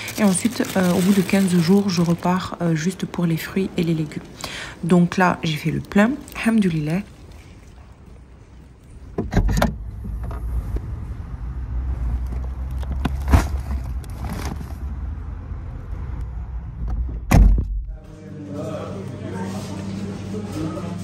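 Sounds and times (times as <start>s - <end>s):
car engine rumble: 9.1s - 18.0s
loud thump: 17.0s - 17.9s.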